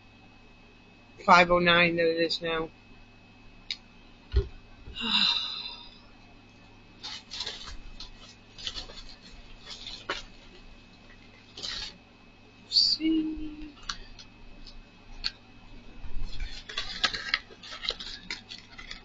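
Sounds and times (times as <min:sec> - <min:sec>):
breathy sound: 0:04.9 - 0:06.1
plastic and cardboard rustling: 0:07.0 - 0:12.0, 0:16.1 - 0:19.0.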